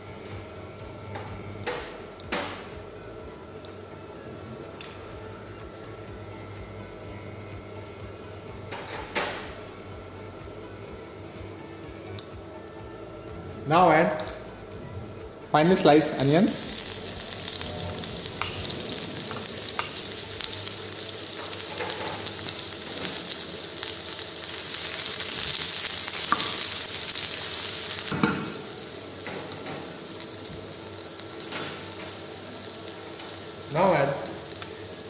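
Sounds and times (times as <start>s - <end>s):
onions sizzling in hot oil: 15.6s - 35.0s.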